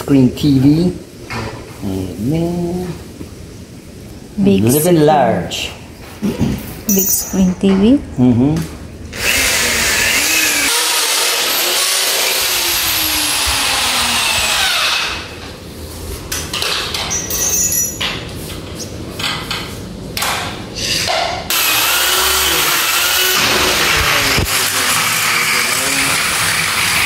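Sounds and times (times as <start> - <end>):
knocks and clinks: 6.9 - 7.8, 16.6 - 18.2
power drill boring: 9.2 - 15.2, 21.5 - 27.0.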